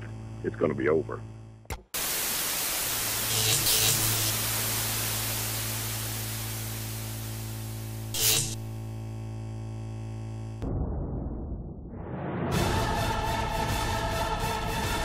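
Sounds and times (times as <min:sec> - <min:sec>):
low steady hum: 0:00.0 - 0:10.6
crackling bursts: 0:01.8 - 0:08.8
television static hiss: 0:02.0 - 0:08.6.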